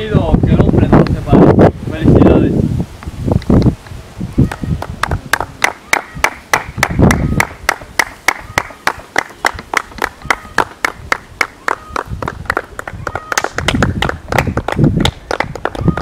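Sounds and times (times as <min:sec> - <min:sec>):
people clapping in rhythm: 0:05.0 - 0:16.0.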